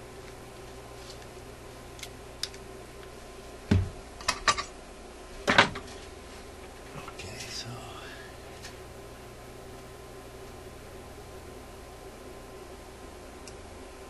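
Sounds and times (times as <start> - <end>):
faint steady hum: 0.0 - 14.0.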